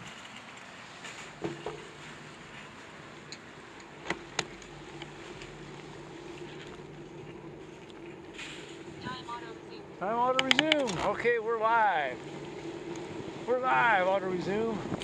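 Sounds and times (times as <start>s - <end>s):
bicycle tyre hum on pavement: 0.0s - 15.0s
sharp clicks: 10.3s - 11.1s.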